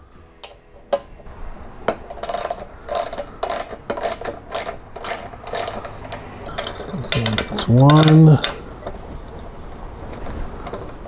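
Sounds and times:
ratchet wrench clicking: 2.1s - 8.6s.

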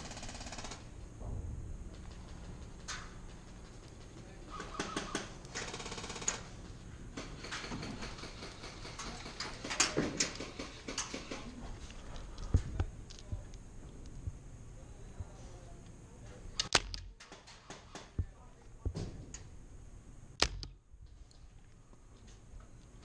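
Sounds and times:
low thump: 1.2s - 1.9s
airsoft gun firing: 16.6s - 18.1s, 20.4s - 20.8s.

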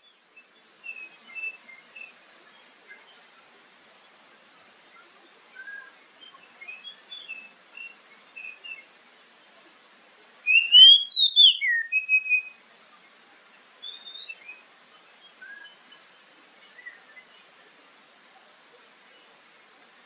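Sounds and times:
bird singing whistled notes: 0.0s - 2.2s, 5.5s - 8.9s, 10.5s - 12.6s, 13.8s - 17.5s.

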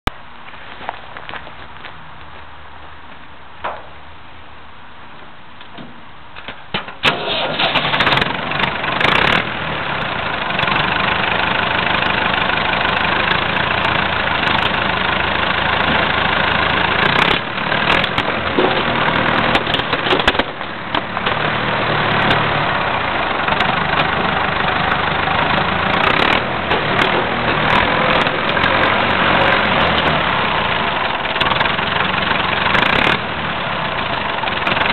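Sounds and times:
tractor engine running: 6.4s - 34.9s
sharp cracks of crushing: 17.0s - 21.4s.

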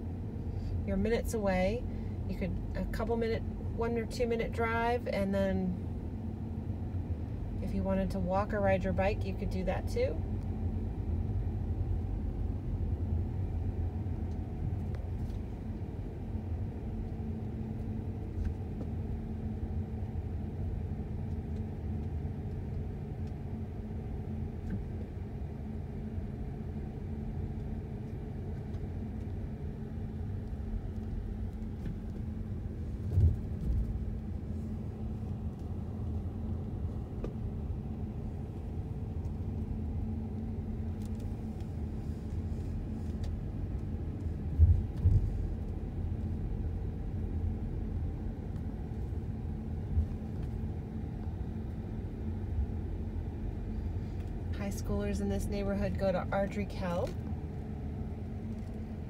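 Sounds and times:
car engine and tyres rumbling: 0.0s - 59.0s
faint steady hum: 0.0s - 59.0s
low thump: 33.1s - 33.9s.

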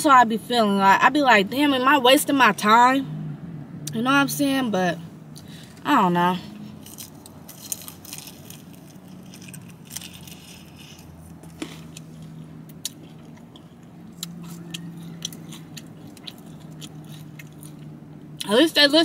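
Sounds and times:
steady low hum: 0.3s - 19.0s
chewing crispy chicken: 6.8s - 18.5s.

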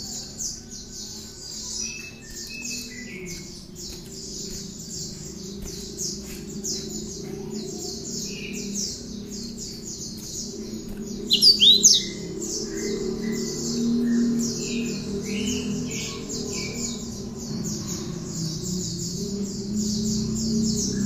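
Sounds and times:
bird singing high chips: 10.2s - 12.3s.

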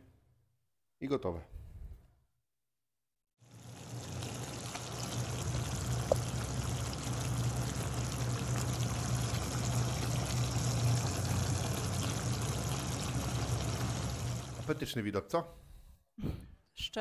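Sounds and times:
sauce bubbling and sizzling in pan: 3.4s - 14.8s
low hum: 3.5s - 14.7s.

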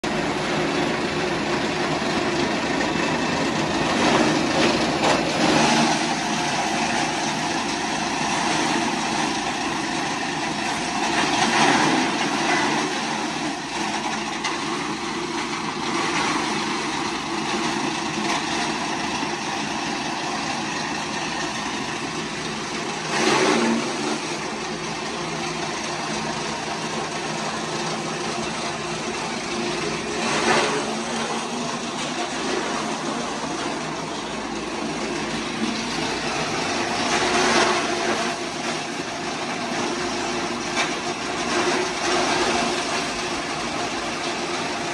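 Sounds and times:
motorised grass chopper running: 0.0s - 44.9s.

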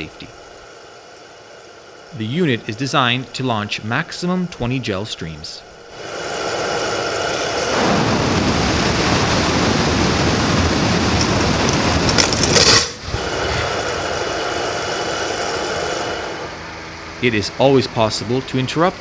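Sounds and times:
quieter steady noise: 0.0s - 8.2s
loud rush of fire: 5.9s - 16.9s.

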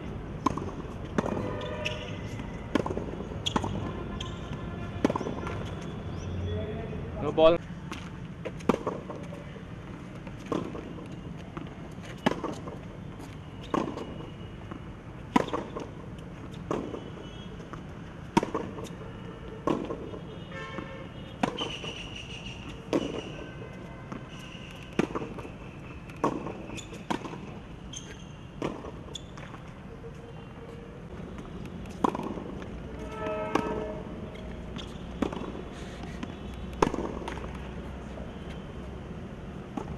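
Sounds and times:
tennis ball bouncing: 0.4s - 5.8s, 7.9s - 19.0s, 19.6s - 20.2s, 21.3s - 23.4s, 24.1s - 29.8s, 31.2s - 38.0s, 39.7s - 39.9s
racquets striking tennis ball: 0.4s - 5.9s, 7.9s - 20.2s, 20.8s - 29.8s, 31.1s - 38.0s, 39.6s - 39.9s.

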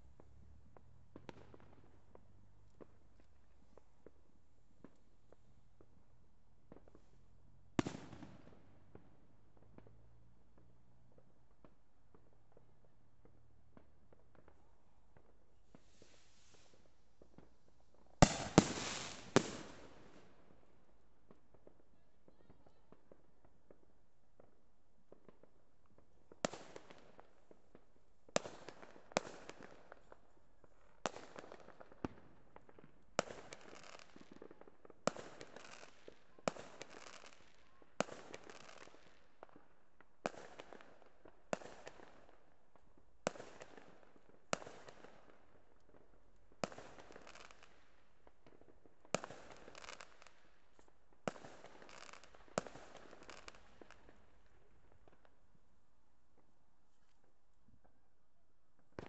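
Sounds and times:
fireworks bursting: 0.0s - 23.0s, 49.1s - 55.3s.

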